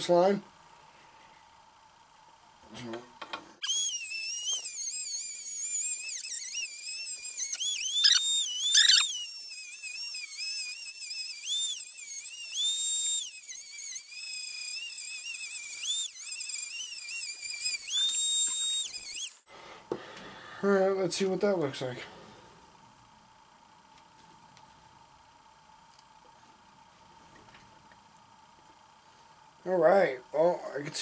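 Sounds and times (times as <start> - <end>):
rotary tool grinding metal: 3.6 - 19.4.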